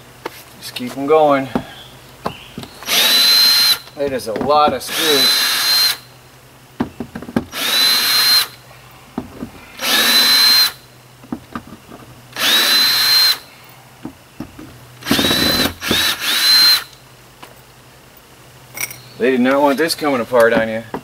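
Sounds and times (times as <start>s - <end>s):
cordless drill whine: 2.8s - 3.9s, 4.9s - 6.1s, 7.5s - 8.6s, 9.8s - 10.8s, 12.3s - 13.5s, 15.0s - 17.0s.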